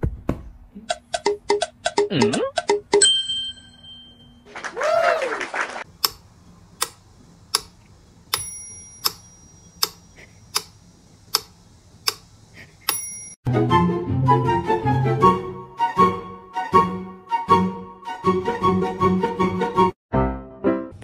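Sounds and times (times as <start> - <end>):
steady sharp ticking: 6.0 - 13.4
tick with metallic ring: 8.3 - 10.0, 12.9 - 13.4.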